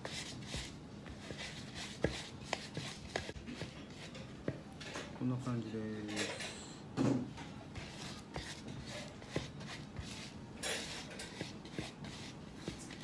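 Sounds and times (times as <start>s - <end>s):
spatula scraping glass bowl: 8.4s - 13.0s.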